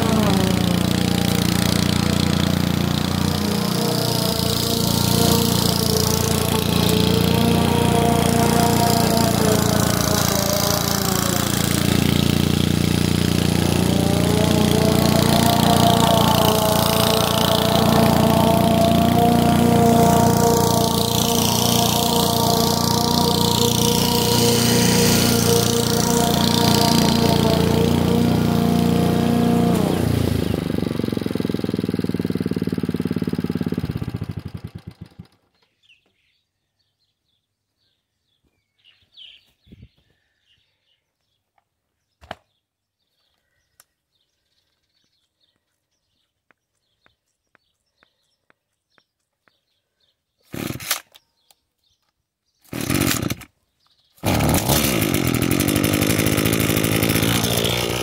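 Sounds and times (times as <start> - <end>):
string trimmer engine running: 0.0 - 35.4, 50.5 - 51.0, 52.7 - 53.5, 54.2 - 58.0
string trimmer pull-start: 0.0 - 35.7, 50.4 - 51.5, 52.6 - 53.6, 54.2 - 58.0
lawn mower engine running down: 0.0 - 35.8, 52.7 - 53.5, 54.2 - 58.0.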